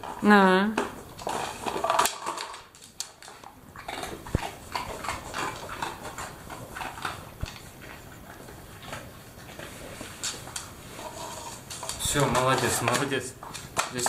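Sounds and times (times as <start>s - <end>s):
dog sniffing: 3.8s - 13.8s.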